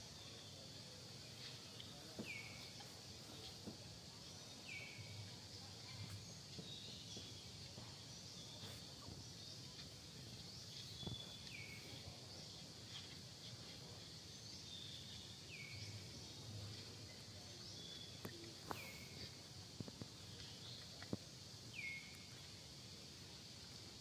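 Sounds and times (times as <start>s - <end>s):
high insect drone: 0.0s - 24.0s
faint sharp clicks: 18.2s - 21.3s.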